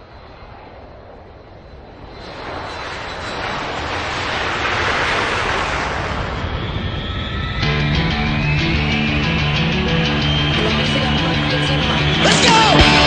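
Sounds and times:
jet airplane engine: 0.0 - 13.0
music: 7.6 - 13.0.

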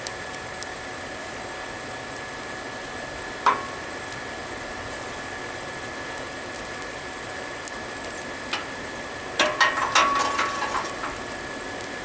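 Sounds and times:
forge blower hiss and whine: 0.0 - 12.0
metallic clinks and scrapes: 9.6 - 11.2.

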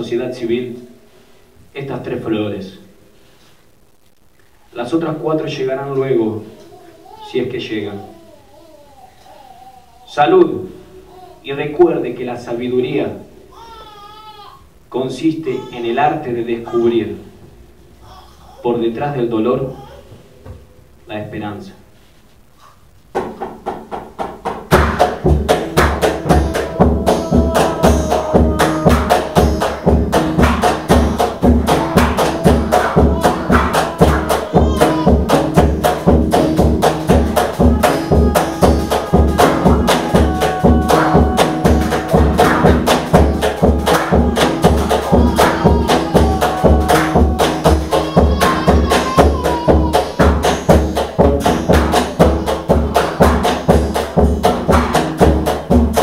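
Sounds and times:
deep drum strikes: 23.2 - 56.0
held pitched notes: 24.8 - 56.0.

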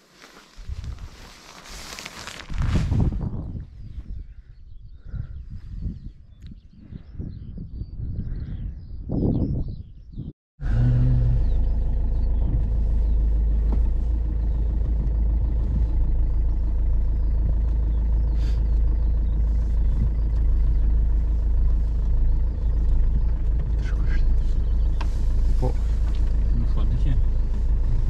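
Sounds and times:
engine and road rumble in cabin: 10.6 - 28.0.

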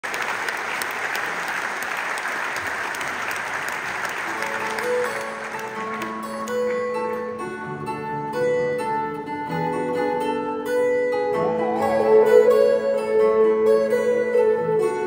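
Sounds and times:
audience applauding: 0.0 - 7.4
band playing steady notes: 4.0 - 15.0.

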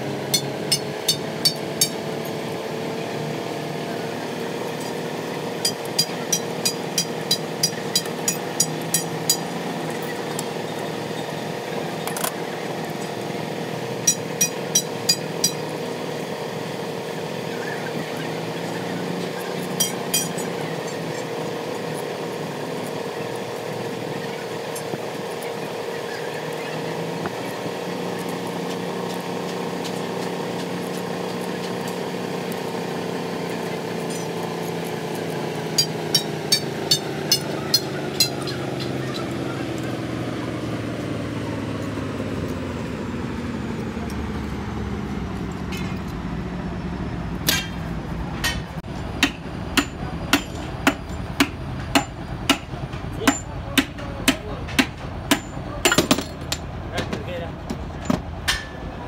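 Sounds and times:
steady machine hum: 0.0 - 59.0
hammer striking metal: 0.2 - 2.4, 5.6 - 10.5, 14.0 - 15.8, 19.7 - 20.6, 35.7 - 38.9, 47.4 - 56.7.

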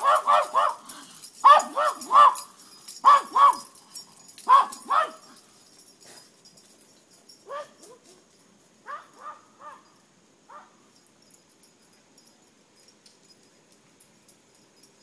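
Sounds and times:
distant dog barking: 0.0 - 3.7, 4.5 - 5.3, 8.9 - 9.9.

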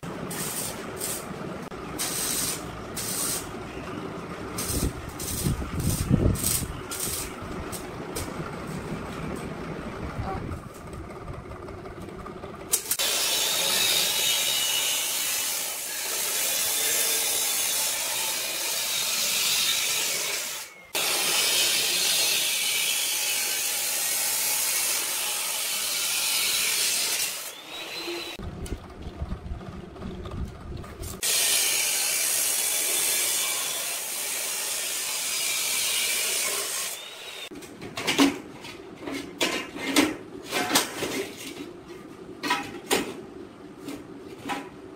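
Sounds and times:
cut-off saw grinding steel: 0.2 - 3.9, 12.7 - 28.4, 31.2 - 37.6.

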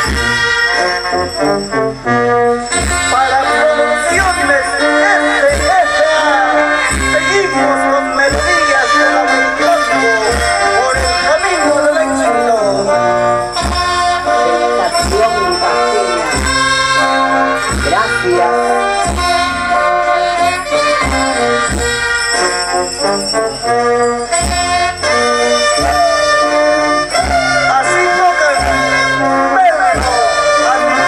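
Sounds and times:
brass band playing: 0.0 - 31.0
trumpets and trombones melody: 0.0 - 31.0
bass drum beat: 6.6 - 11.3, 13.6 - 19.8.

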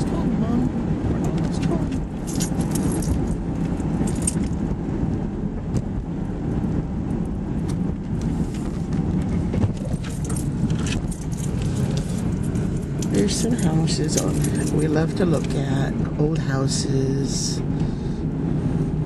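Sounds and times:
car engine and road noise: 0.0 - 19.0
light metallic jingling: 1.3 - 4.6, 9.7 - 15.9.

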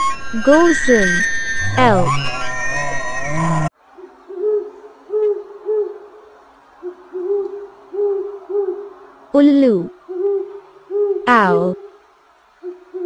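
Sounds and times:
owl hooting: 0.0 - 3.0, 4.0 - 12.0, 12.6 - 13.0
sound with falling pitch: 0.0 - 3.7.

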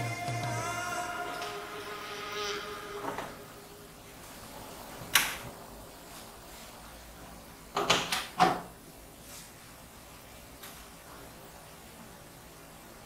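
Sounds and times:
background music: 0.0 - 4.0.

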